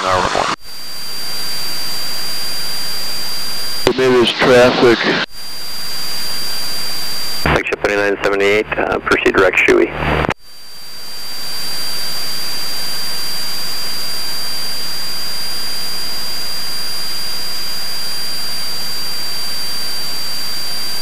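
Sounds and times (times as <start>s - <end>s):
thin high whine: 0.0s - 8.9s, 9.9s - 21.0s
aircraft engine and airflow hiss: 4.0s - 5.3s.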